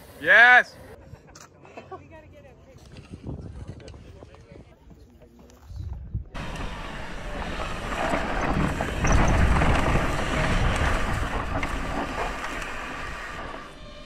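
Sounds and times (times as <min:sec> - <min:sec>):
wind rushing over microphone: 0:02.9 - 0:04.7, 0:05.7 - 0:14.0
bike tyres crunching over dirt: 0:06.4 - 0:14.0.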